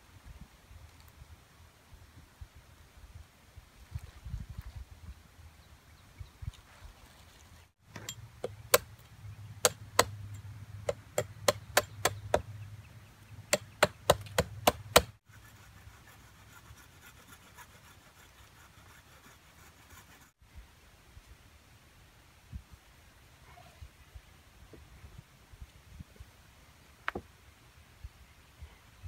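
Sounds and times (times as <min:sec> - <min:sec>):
hatchet knocking on wooden log: 0:09.6 - 0:10.2, 0:10.9 - 0:12.5, 0:13.5 - 0:15.1.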